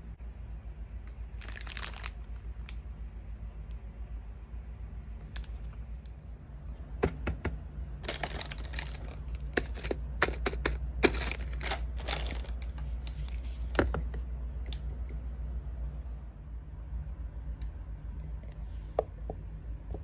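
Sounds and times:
steady low hum: 0:00.0 - 0:20.0
plastic bag crinkling: 0:01.3 - 0:02.7, 0:08.0 - 0:13.7.

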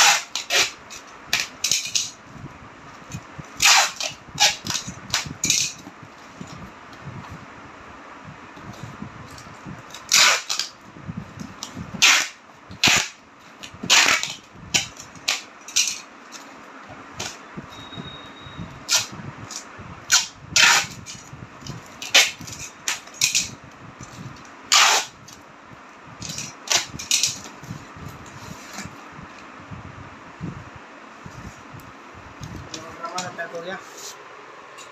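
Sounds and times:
packing tape ripping off roll: 0:00.0 - 0:02.2, 0:03.6 - 0:05.8, 0:09.9 - 0:10.8, 0:12.0 - 0:15.9, 0:18.9 - 0:21.2, 0:22.0 - 0:23.5, 0:24.7 - 0:25.4, 0:26.2 - 0:27.5.

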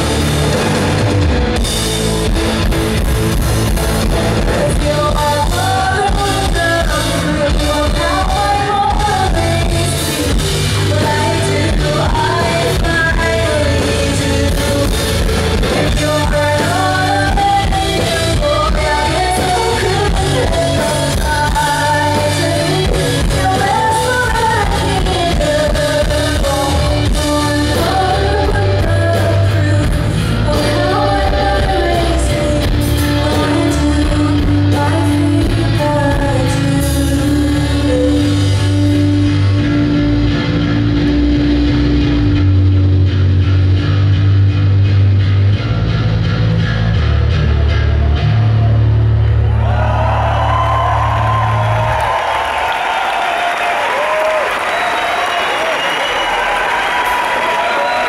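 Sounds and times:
bass guitar: 0:00.0 - 0:54.8
drums: 0:00.0 - 0:58.0
electric guitar: 0:00.0 - 0:58.0
woman singing: 0:04.4 - 0:39.3.

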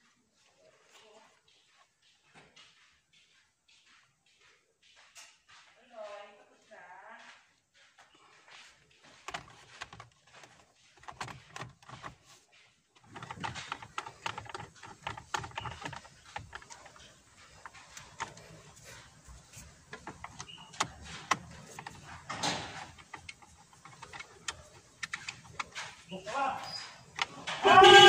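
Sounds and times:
clicks and rustles of hands on controls: 0:08.9 - 0:28.0.

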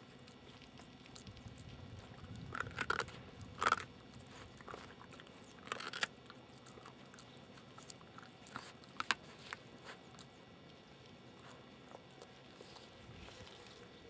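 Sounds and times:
puppy chewing bone: 0:00.0 - 0:14.0.

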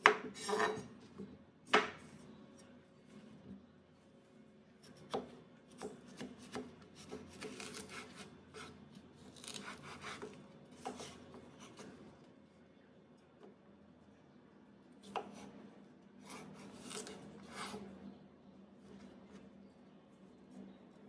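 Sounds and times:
knife cutting cucumber: 0:04.8 - 0:12.0, 0:15.0 - 0:15.6, 0:16.2 - 0:17.9.

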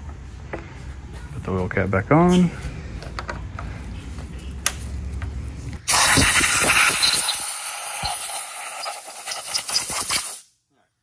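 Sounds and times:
compressed air hissing: 0:05.9 - 0:10.5.

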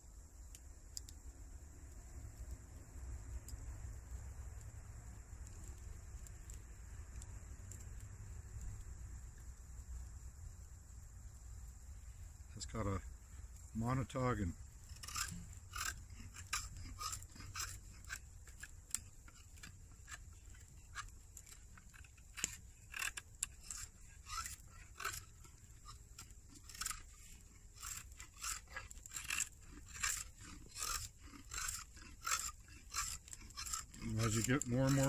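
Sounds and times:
knife scraping wood: 0:13.8 - 0:35.0.

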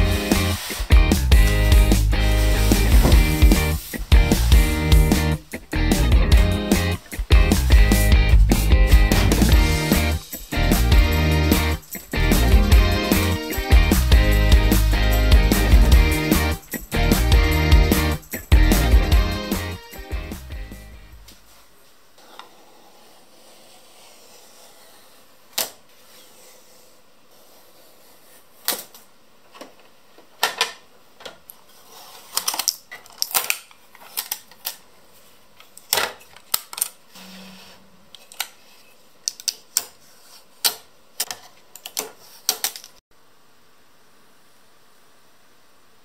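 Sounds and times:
plastic packing crackles and clicks: 0:32.4 - 0:34.8.

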